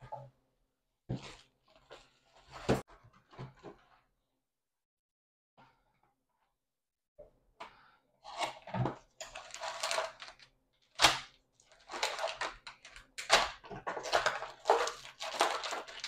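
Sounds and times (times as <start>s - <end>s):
cardboard and plastic rustling: 8.3s - 16.0s.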